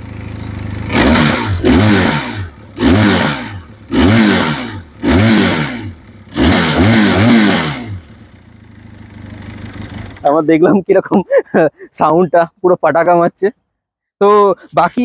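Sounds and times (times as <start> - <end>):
motorcycle engine revving: 0.0 - 10.8.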